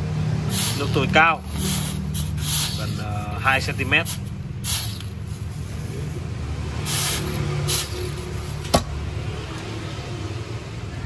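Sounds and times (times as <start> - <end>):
hot steel hissing in water: 0.4 - 8.6.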